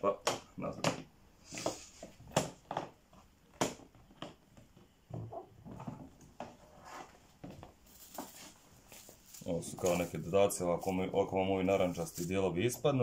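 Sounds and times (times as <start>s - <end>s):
plastic lid knocking and rubbing: 0.8s - 7.8s.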